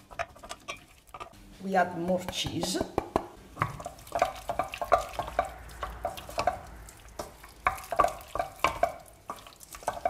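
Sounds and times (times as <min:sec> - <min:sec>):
wooden spoon stirring pasta: 0:00.0 - 0:01.4, 0:02.0 - 0:10.0
spoon knocking metal pot: 0:02.0 - 0:10.0.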